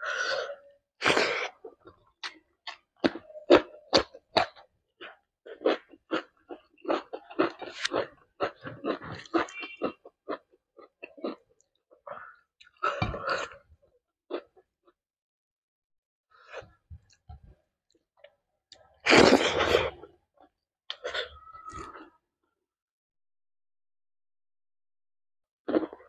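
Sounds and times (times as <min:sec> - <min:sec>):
chewing: 0:01.4 - 0:11.8.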